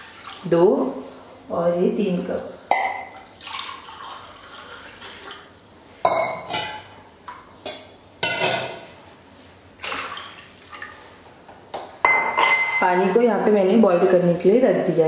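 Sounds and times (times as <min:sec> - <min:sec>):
water pouring into metal pot: 0:03.2 - 0:05.4
glass clinking on pot: 0:12.0 - 0:12.9.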